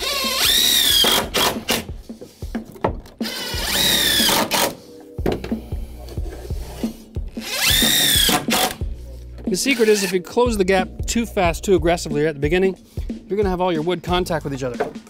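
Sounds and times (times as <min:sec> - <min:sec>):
impact driver motor whining: 0:00.0 - 0:01.9, 0:03.2 - 0:04.6, 0:07.4 - 0:08.8.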